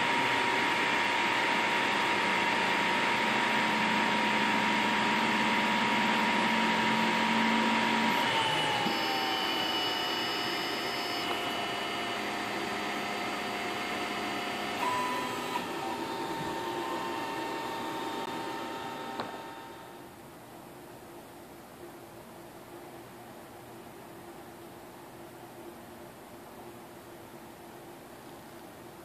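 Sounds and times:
cooling fans hissing: 0.0 - 29.0
stepper motors whining: 1.7 - 20.0.

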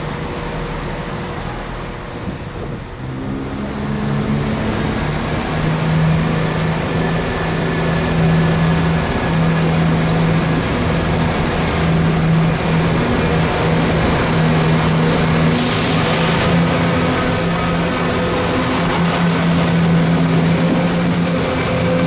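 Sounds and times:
diesel engine humming: 0.0 - 22.0
burst of hiss: 15.5 - 16.4.

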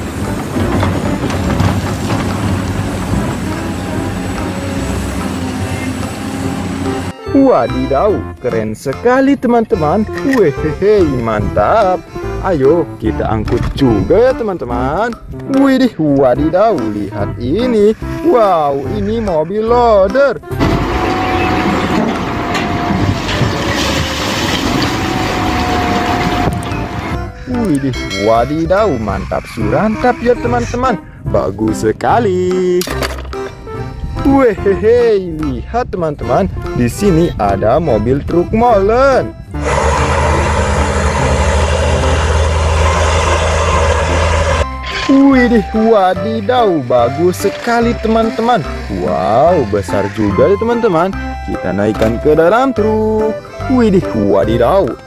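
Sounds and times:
excavator diesel engine running: 0.0 - 7.9, 20.5 - 27.8, 39.5 - 52.3
rubble pouring: 21.4 - 26.7.

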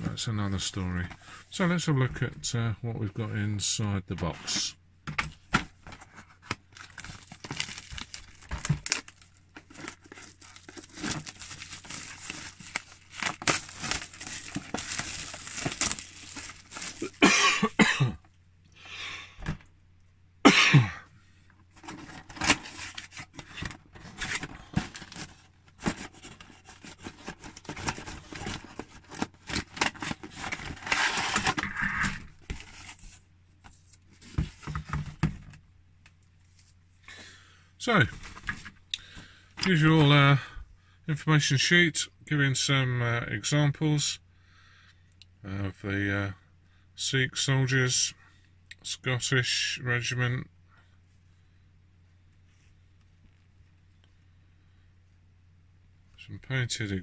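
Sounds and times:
plastic wrapping tearing and crinkling: 6.8 - 17.2
cardboard box scraping: 29.8 - 33.1.

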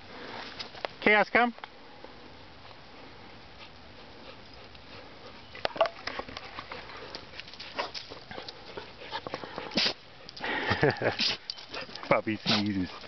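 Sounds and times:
dog sneezing and snorting: 9.7 - 10.0, 11.1 - 11.4.

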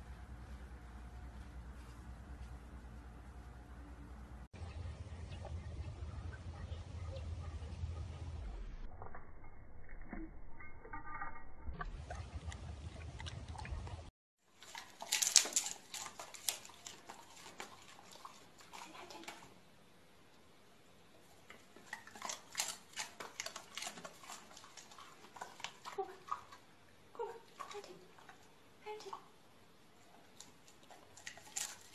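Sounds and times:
low rumble: 0.0 - 14.1.

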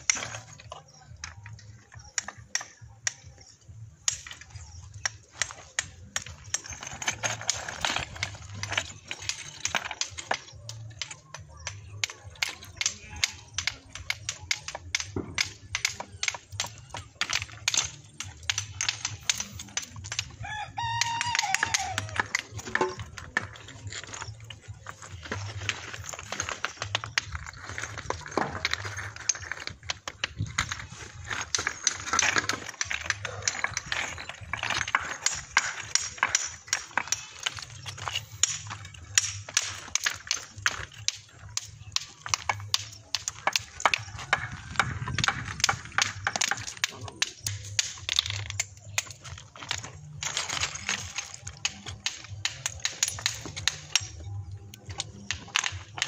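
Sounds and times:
rooster crowing: 20.4 - 22.1.

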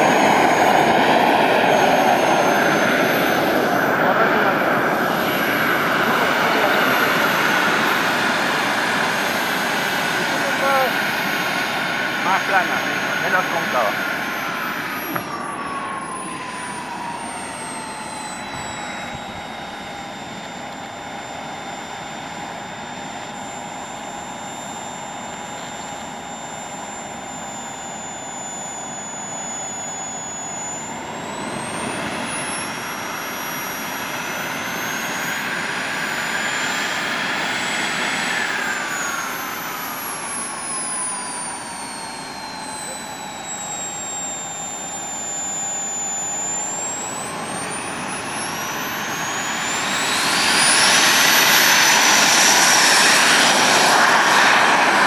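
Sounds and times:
model gas turbine whining: 0.0 - 55.0.

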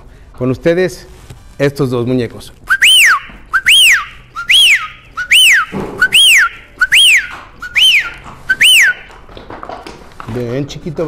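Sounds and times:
loud whistled chirp: 2.7 - 9.2.

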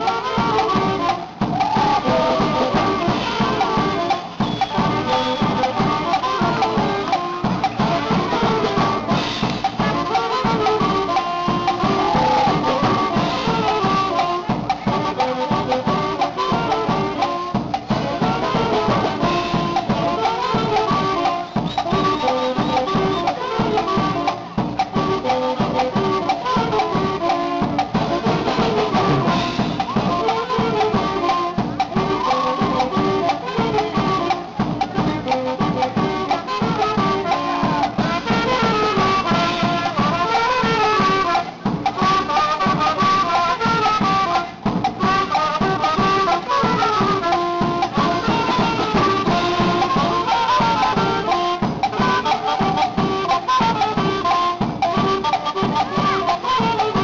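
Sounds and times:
dance band with brass and drums: 0.0 - 57.0.

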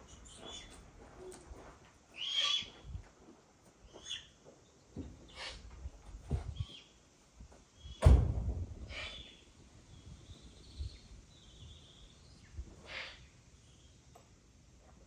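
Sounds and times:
loud thump: 8.0 - 8.9.

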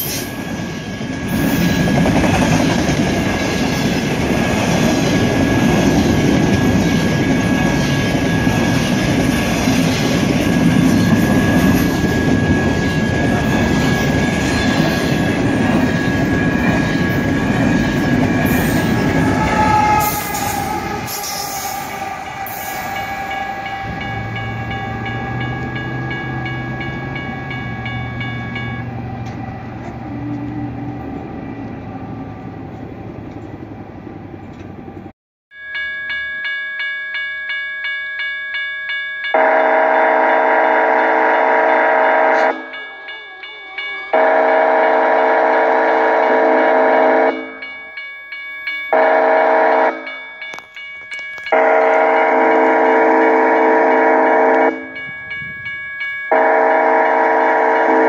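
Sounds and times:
crossing bell ringing: 0.0 - 33.7, 35.5 - 58.0
freight train rumbling past: 0.0 - 35.1, 48.9 - 58.0
locomotive horn blasts: 18.4 - 26.4, 39.4 - 42.7, 44.1 - 47.5, 48.9 - 50.1, 51.5 - 54.9, 56.3 - 58.0.

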